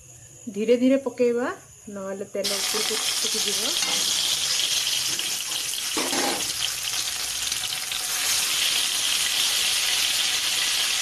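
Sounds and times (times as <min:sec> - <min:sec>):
fish sizzling in hot oil: 0:02.4 - 0:11.0.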